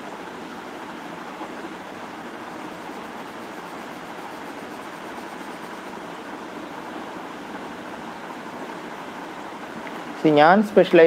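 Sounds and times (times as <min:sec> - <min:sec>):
steady background hiss: 0:00.0 - 0:11.0
pencil strokes on paper: 0:02.6 - 0:06.0.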